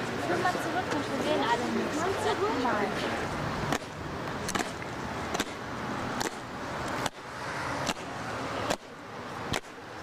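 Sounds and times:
boots striking stone paving: 3.7s - 5.6s.

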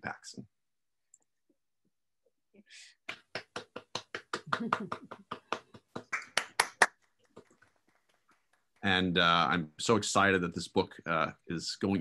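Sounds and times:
hands clapping: 3.0s - 9.3s.

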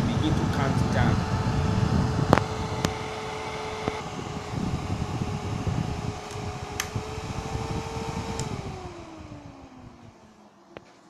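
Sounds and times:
cooling fans humming: 0.0s - 11.0s
fan switch click: 2.3s - 3.0s, 6.2s - 7.0s, 8.2s - 8.6s
sharp clicks: 3.8s - 4.0s, 6.3s - 7.0s.

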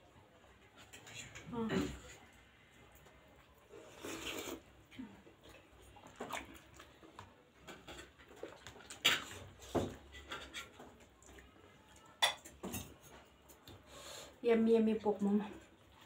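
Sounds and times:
chewing and lip-smacking: 5.2s - 9.4s.

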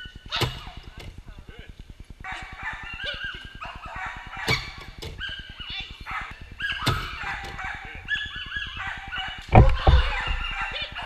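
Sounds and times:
dogs barking and yipping: 0.0s - 1.1s, 2.2s - 11.0s
sharp bangs of box pedal: 9.6s - 10.6s.

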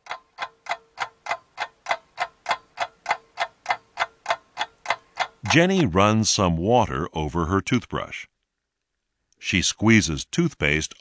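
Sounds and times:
clock ticking: 0.0s - 5.9s.

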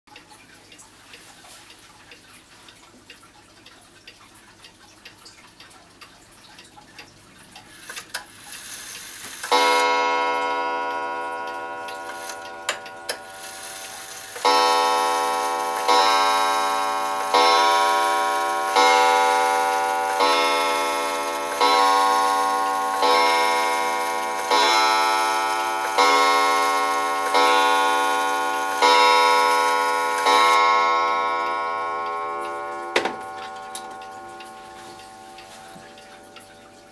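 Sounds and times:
clock pendulum ticking: 0.1s - 36.9s
clock striking: 9.3s - 36.9s.

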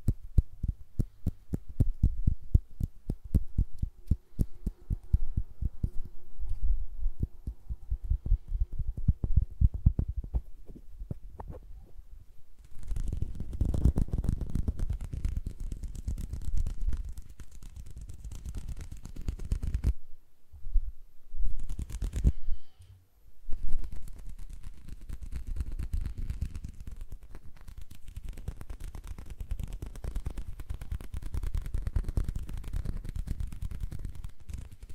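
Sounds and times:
finger taps and flutters: 0.0s - 11.6s, 12.6s - 20.0s, 21.5s - 22.5s, 23.5s - 34.9s
hands rubbing together: 12.6s - 19.9s, 21.6s - 22.5s, 23.6s - 34.9s.

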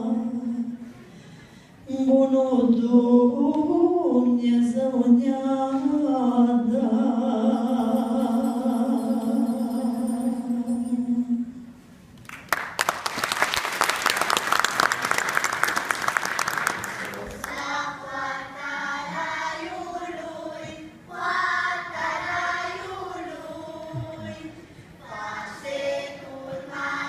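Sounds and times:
woman and children singing: 0.0s - 0.8s, 1.9s - 11.6s, 17.4s - 27.0s
audience applauding: 12.2s - 17.6s.

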